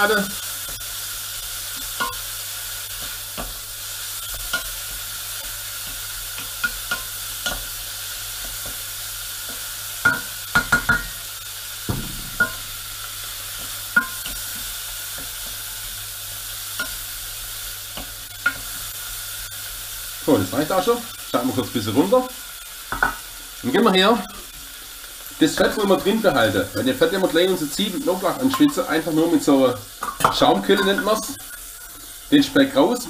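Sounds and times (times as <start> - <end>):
pork sizzling in a pot: 0.0 - 33.0
wooden spoon knocking on pot: 9.5 - 11.1, 11.9 - 12.9.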